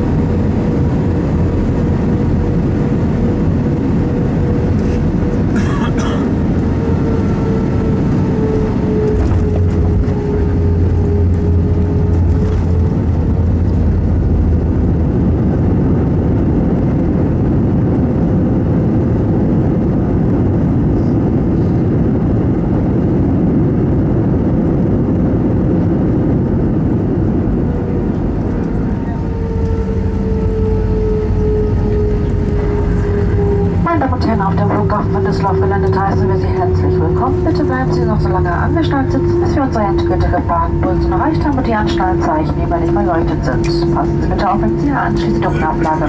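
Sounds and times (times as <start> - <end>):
aircraft engines roaring: 0.0 - 46.0
engine whine: 0.0 - 46.0
rushing air: 19.7 - 23.7.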